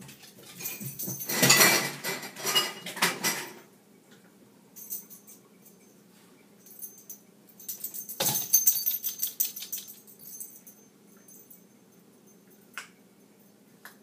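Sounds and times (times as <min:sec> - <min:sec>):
jingling and clicking: 0:06.6 - 0:12.6.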